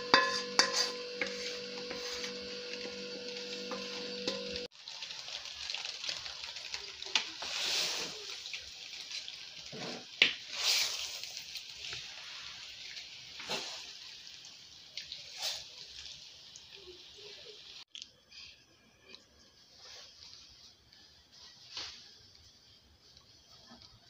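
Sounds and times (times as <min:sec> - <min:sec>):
spatula knocking metal pot: 0:00.0 - 0:04.7
wet squishing of saucy noodles: 0:04.6 - 0:18.2.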